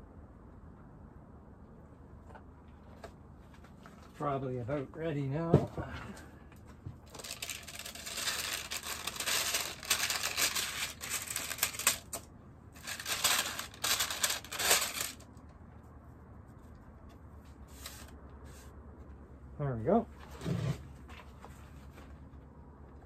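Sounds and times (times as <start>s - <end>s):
parchment paper crinkling: 7.1s - 12.2s, 12.8s - 15.3s.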